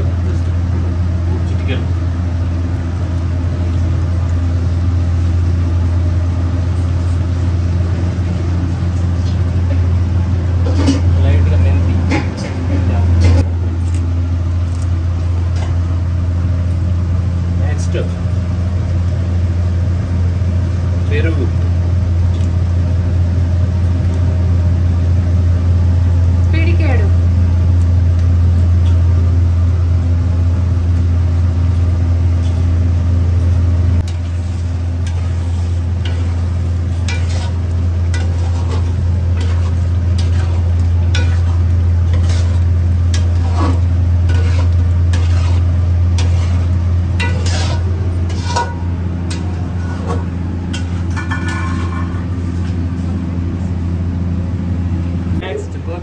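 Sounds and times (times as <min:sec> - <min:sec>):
loud steady low hum: 0:00.0 - 0:56.0
spoon scraping cooking pot: 0:37.0 - 0:37.6, 0:38.2 - 0:42.6, 0:43.2 - 0:48.8.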